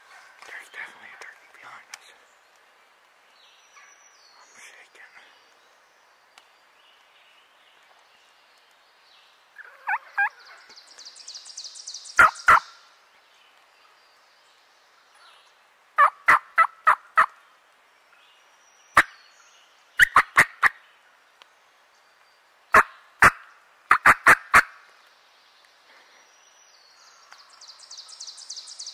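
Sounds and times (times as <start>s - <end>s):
turkey gobbling loudly: 9.6s - 10.3s, 12.2s - 12.7s, 16.0s - 17.3s, 22.8s - 24.7s.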